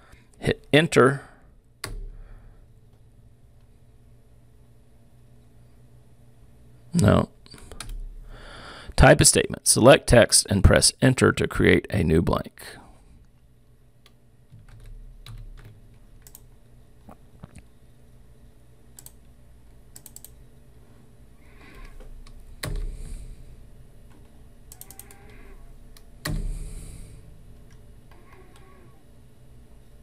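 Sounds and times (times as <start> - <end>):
keyboard and mouse clicks: 14.0 - 17.7, 19.0 - 19.2, 19.9 - 20.4, 21.7 - 23.1, 24.1 - 26.5.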